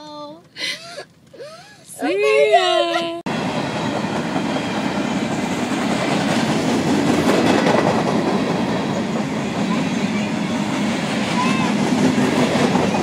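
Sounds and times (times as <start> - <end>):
freight train rumbling past: 2.6 - 13.0
wheels clattering on rails: 3.8 - 13.0.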